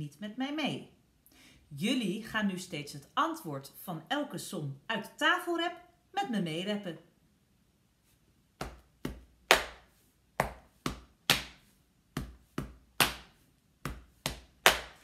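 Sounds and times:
hands patting chest: 8.6s - 15.0s.

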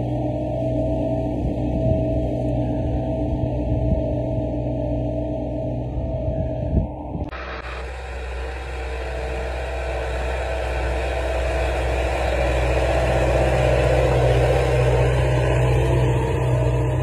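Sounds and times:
tractor diesel engine under load: 7.3s - 17.0s.

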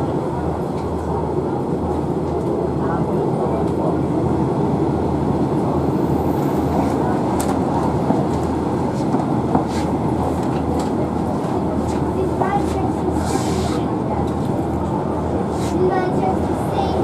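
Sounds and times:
train wheels on rails: 5.4s - 17.0s.

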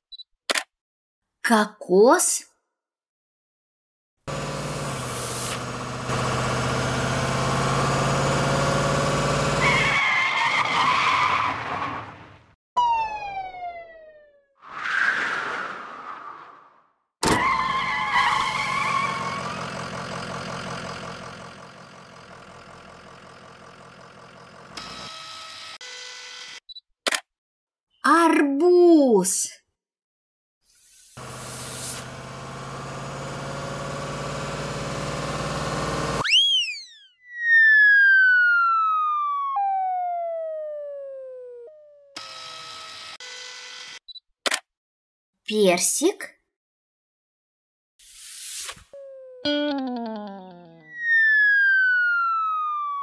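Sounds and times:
cartoon truck engine: 4.3s - 13.2s, 17.2s - 25.8s, 31.2s - 44.6s, 48.9s - 53.0s
cartoon whistle swooping up: 36.2s - 40.0s, 50.8s - 53.0s
long falling whistle: 36.2s - 41.5s, 50.8s - 53.0s.

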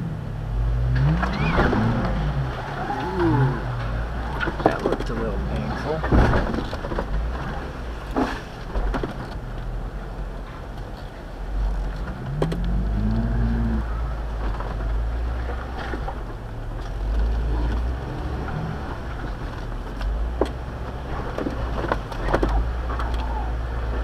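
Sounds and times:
engine rumbling at low speed: 0.0s - 24.0s.

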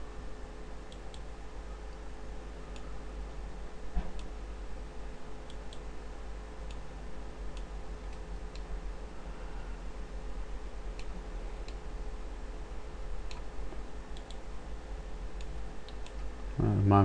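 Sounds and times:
low electrical hum: 0.0s - 17.0s
computer mouse clicks: 0.9s - 1.3s, 5.4s - 5.9s, 13.3s - 13.5s, 14.1s - 14.4s, 15.4s - 16.3s.

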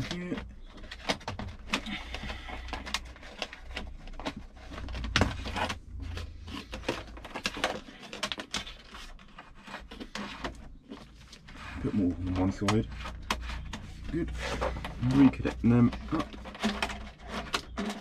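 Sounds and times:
hands handling plastic connectors: 0.0s - 18.0s.

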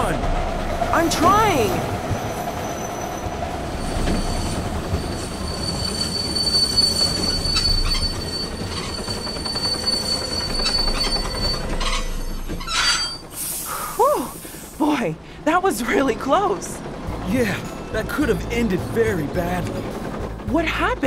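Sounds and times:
train rumbling: 0.0s - 21.0s
steel wheels squealing on rails: 1.3s - 14.8s.

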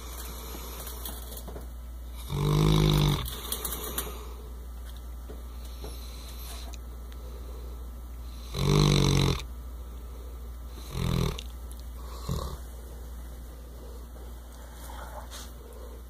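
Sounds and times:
dog snoring: 2.1s - 3.4s, 8.2s - 9.5s, 10.7s - 12.7s.

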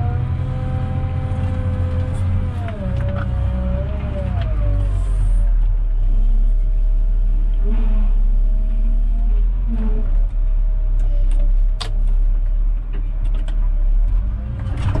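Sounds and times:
hydraulics whine: 0.0s - 11.2s
diesel engine working hard: 0.0s - 15.0s.

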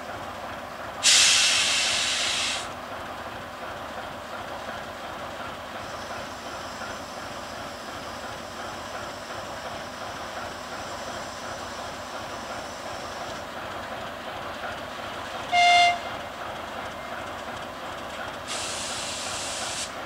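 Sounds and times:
train wagons on rails: 0.0s - 20.0s
locomotive horn toot: 15.5s - 16.2s.

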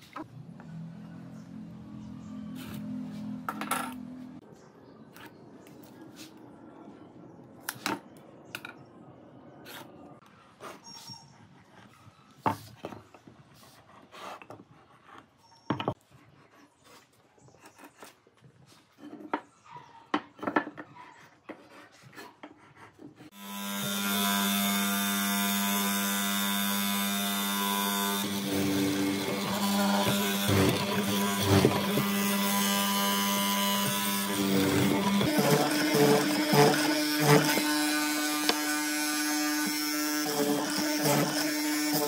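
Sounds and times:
mortiser motor humming: 23.3s - 42.0s
chisel boring into wood: 23.4s - 42.0s.

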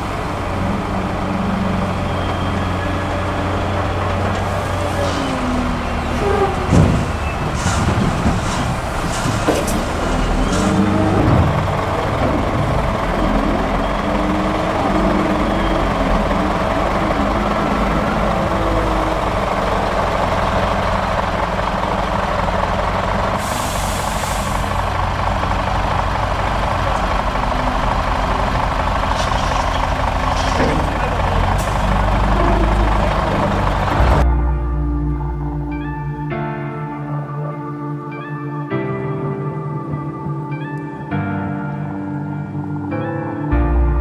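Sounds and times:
air brakes hissing: 0.0s - 34.2s
heavy diesel engines running: 0.0s - 40.6s
knocks and rattles of loader bucket: 6.1s - 15.3s.

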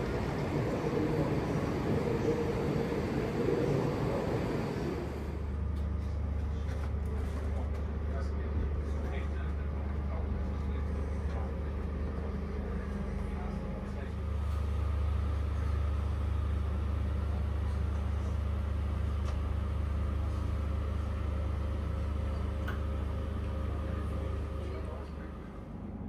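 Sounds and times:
train coach interior hum: 0.0s - 26.0s.

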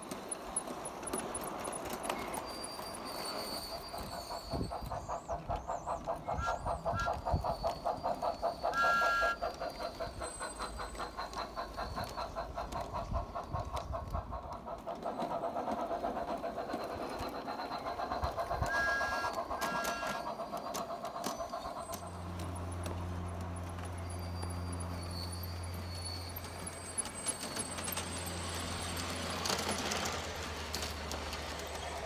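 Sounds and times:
model steam engine chuffing: 0.1s - 32.0s
two-tone whistle toots: 2.4s - 5.4s, 6.2s - 10.0s, 18.6s - 20.4s.

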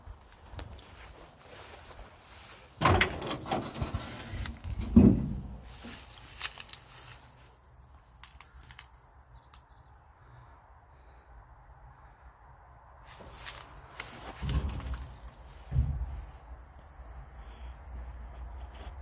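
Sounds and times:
metal door clunk: 2.8s - 5.7s
metal knocks: 2.8s - 5.7s
door thud: 4.8s - 5.6s.

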